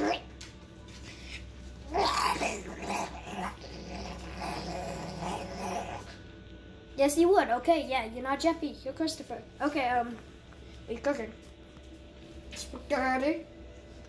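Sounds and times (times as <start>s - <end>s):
animal-like growling: 1.8s - 6.2s.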